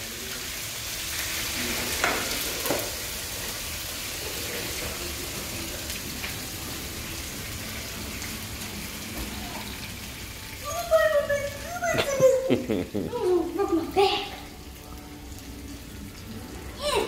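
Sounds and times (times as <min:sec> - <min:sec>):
steaks sizzling in frying pan: 0:00.0 - 0:16.9.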